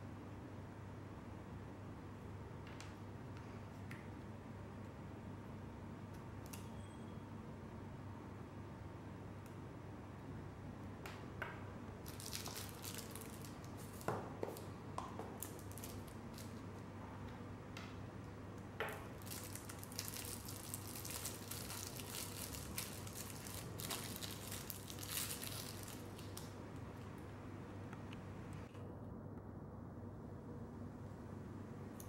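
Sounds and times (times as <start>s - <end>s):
low steady hum: 0.0s - 32.0s
plastic wrapping crinkling: 12.0s - 14.7s, 15.3s - 16.8s, 18.9s - 27.2s.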